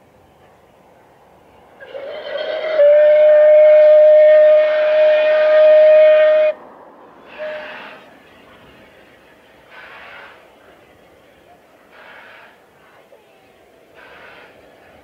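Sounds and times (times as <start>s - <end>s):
steam locomotive whistle: 1.8s - 6.6s, 7.3s - 8.1s, 9.7s - 10.5s, 11.9s - 12.6s, 14.0s - 14.7s.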